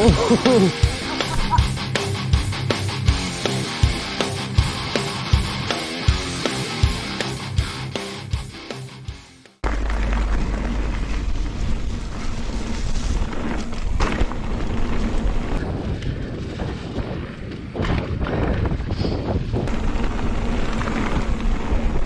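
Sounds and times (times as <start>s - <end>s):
bike knocks and rattles: 9.6s - 22.0s
wind buffeting microphone: 10.4s - 22.0s.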